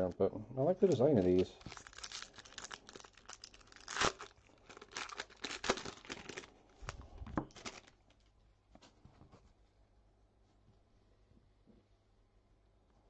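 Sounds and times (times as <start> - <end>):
trading cards rustling and snapping: 0.9 - 8.0.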